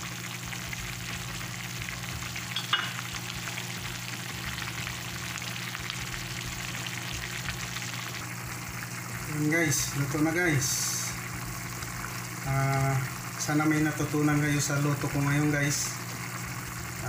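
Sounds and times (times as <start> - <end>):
low steady hum: 0.0 - 17.0
sauce bubbling in a frying pan: 0.0 - 17.0.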